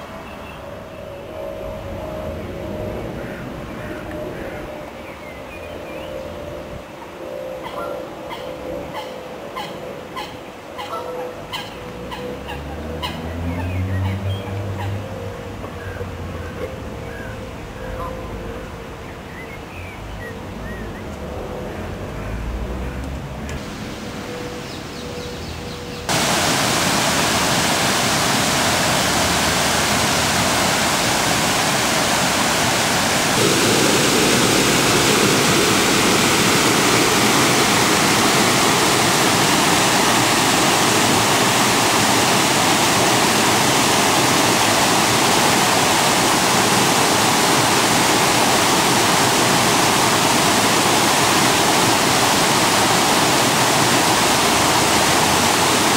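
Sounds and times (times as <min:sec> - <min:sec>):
water rushing over weir: 0:26.1 - 0:55.9.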